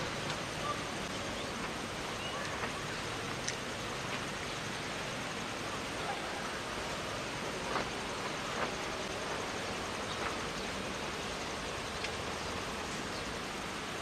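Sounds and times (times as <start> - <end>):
rushing outdoor background noise: 0.0 - 14.0
faint ticks: 2.4 - 4.5, 11.8 - 12.3.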